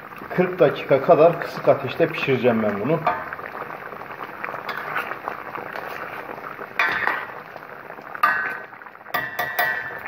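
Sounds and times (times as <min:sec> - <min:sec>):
syrup bubbling in a pot: 0:00.0 - 0:10.0
spoon clinking against pot: 0:08.2 - 0:10.0.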